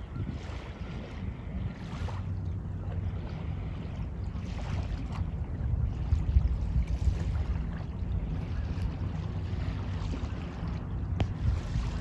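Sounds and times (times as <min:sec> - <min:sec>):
small waves washing on shore: 0:00.0 - 0:12.0
wind buffeting microphone: 0:00.0 - 0:12.0.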